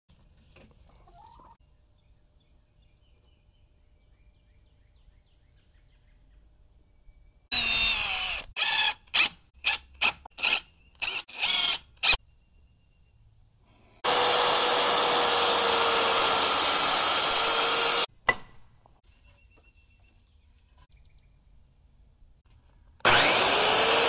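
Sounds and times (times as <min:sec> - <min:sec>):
cordless impact driver: 0:07.5 - 0:12.2, 0:14.0 - 0:18.1, 0:23.0 - 0:24.0.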